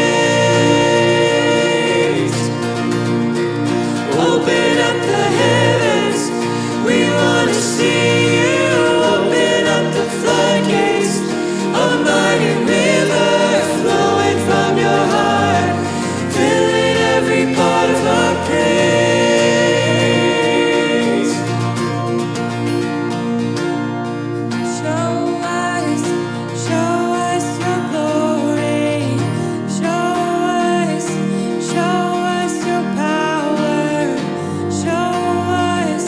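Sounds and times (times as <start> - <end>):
people singing together: 0.0 - 22.5
keyboard: 0.0 - 36.0
strummed acoustic guitar: 0.0 - 36.0.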